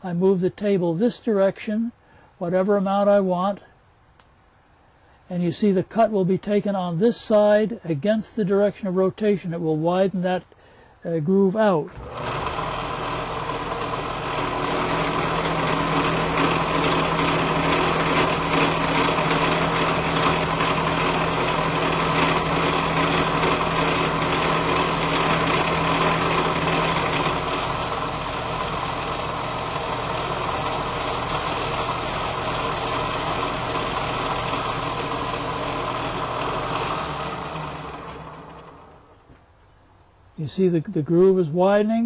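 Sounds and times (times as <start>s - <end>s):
low machine hum: 11.8s - 39.8s
drill press milling metal: 11.9s - 39.1s.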